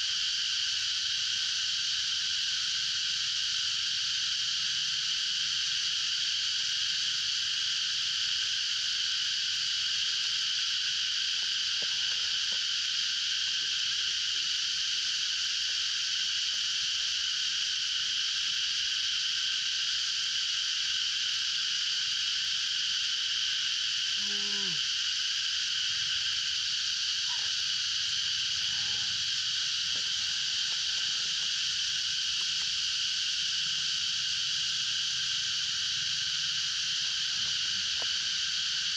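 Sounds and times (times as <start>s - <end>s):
high-pitched animal chorus: 27.2s - 27.6s, 28.2s - 31.9s.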